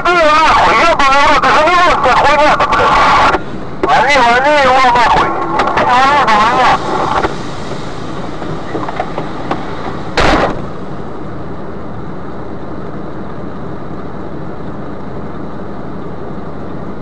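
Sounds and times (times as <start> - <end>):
vehicle rumble from inside cab: 0.1 - 17.0
short loud burst of noise: 4.9 - 11.2.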